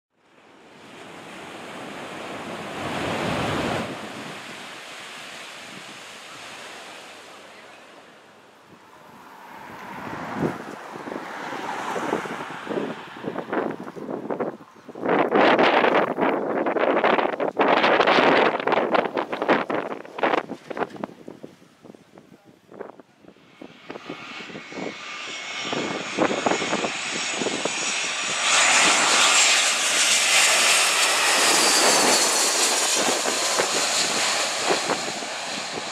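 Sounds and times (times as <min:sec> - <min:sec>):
waves washing up a beach: 0:00.5 - 0:13.2
wind buffeting microphone: 0:08.7 - 0:35.9.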